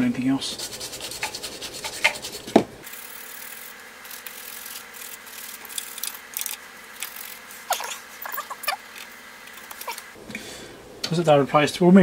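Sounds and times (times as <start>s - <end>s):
tool scratching circuit board: 0.5s - 9.1s.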